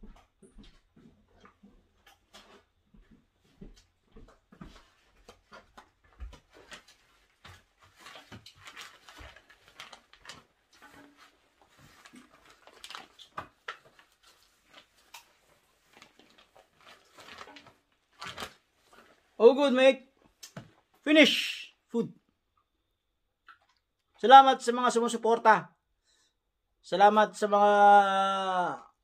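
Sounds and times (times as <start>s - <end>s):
wet eating smacks: 23.4s - 23.9s.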